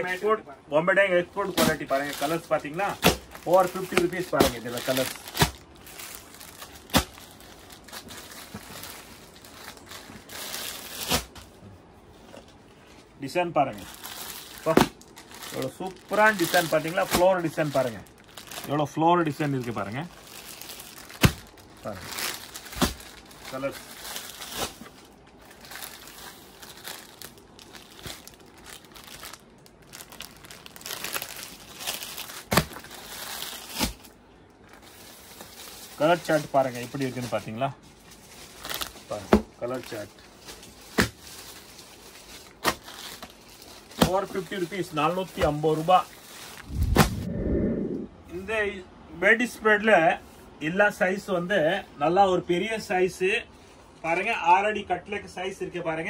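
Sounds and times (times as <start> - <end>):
plastic wrapping crinkling: 1.2 - 11.5, 13.6 - 47.1.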